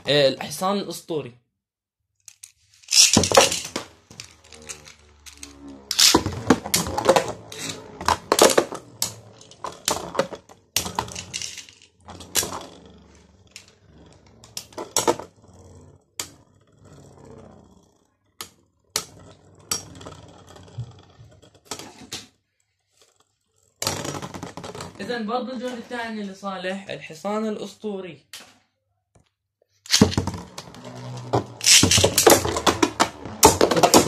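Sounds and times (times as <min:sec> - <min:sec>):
spinning tops clashing: 0:02.3 - 0:06.3, 0:10.8 - 0:12.5, 0:29.9 - 0:30.4, 0:31.6 - 0:32.6.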